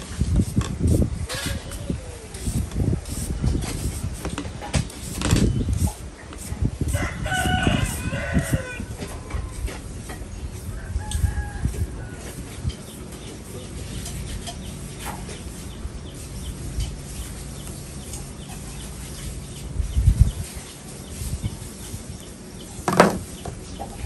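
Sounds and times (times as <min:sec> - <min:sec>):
chickens clucking: 0:07.4 - 0:20.5.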